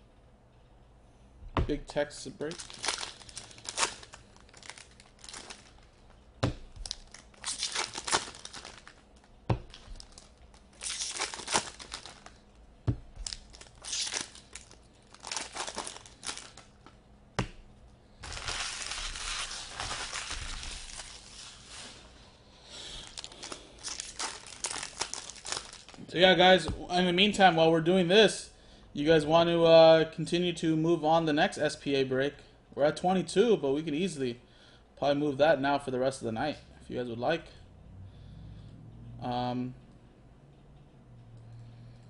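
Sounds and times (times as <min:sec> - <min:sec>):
foil wrappers crinkling and tearing: 0:02.4 - 0:12.4, 0:13.2 - 0:17.0, 0:18.2 - 0:22.0, 0:22.8 - 0:26.1.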